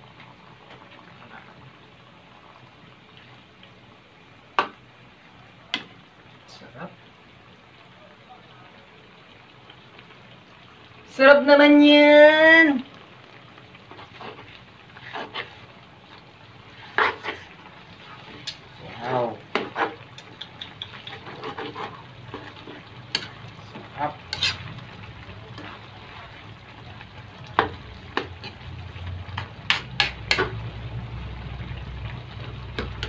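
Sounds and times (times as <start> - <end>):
stew simmering hiss: 0.0 - 33.0
metal ladle scraping pan: 13.9 - 15.6, 16.7 - 23.4, 24.1 - 24.9, 29.4 - 30.6.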